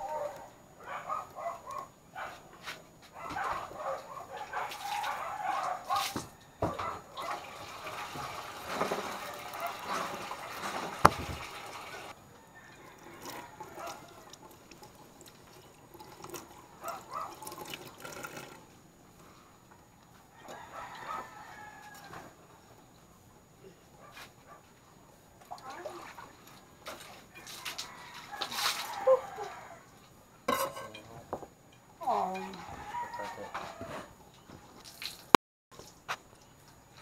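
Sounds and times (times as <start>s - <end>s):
dog barking: 0.0s - 2.5s, 3.1s - 7.5s, 9.3s - 10.6s, 13.8s - 14.1s, 16.8s - 17.4s, 20.7s - 21.3s, 24.0s - 24.7s.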